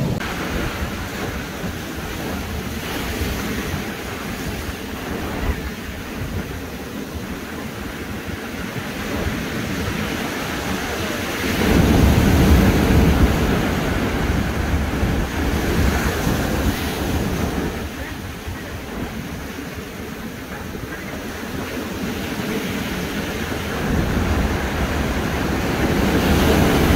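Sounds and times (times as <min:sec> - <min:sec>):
ocean surf breaking on rocks: 0:00.0 - 0:26.9.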